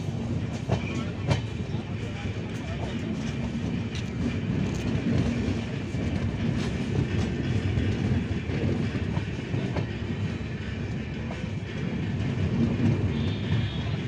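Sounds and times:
train rumbling on track: 0:00.0 - 0:14.0.

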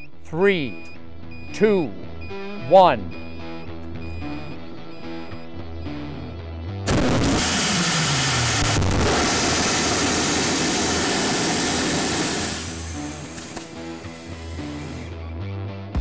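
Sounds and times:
rocket engine roaring: 0:06.9 - 0:12.8.

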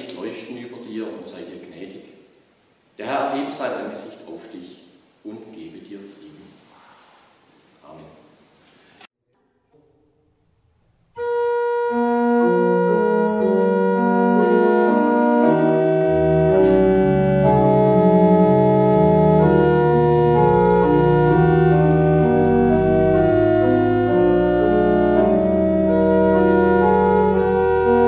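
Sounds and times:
church organ chords: 0:11.1 - 0:28.0
deep organ pedal bass notes: 0:11.2 - 0:28.0.

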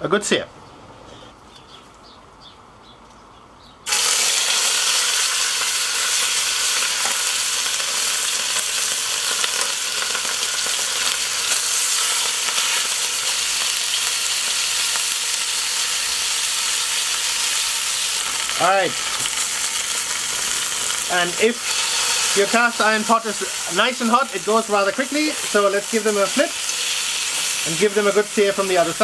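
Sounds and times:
meat searing in butter: 0:03.9 - 0:29.0.

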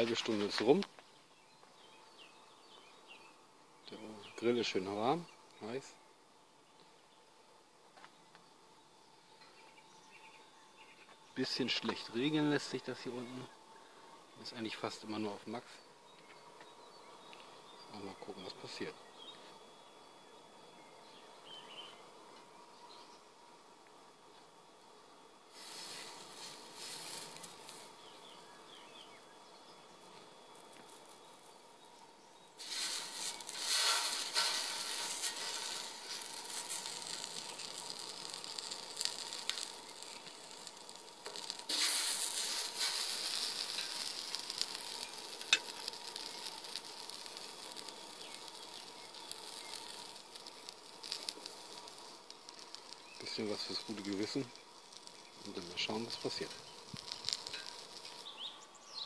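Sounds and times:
meat sizzling on a grill: 0:25.5 - 0:29.2, 0:32.3 - 0:59.0.

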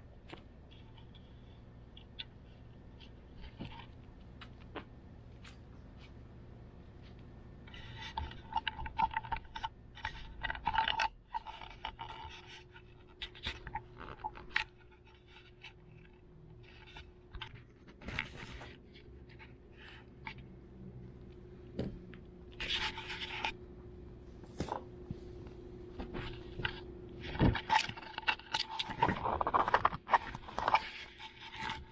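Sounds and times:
puppy claws scratching on plastic: 0:07.7 - 0:20.4, 0:26.0 - 0:31.9.

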